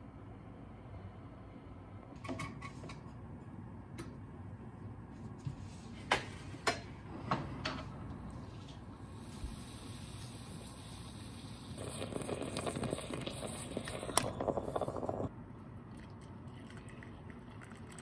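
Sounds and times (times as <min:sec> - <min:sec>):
coffee pot hissing: 0:09.0 - 0:15.3.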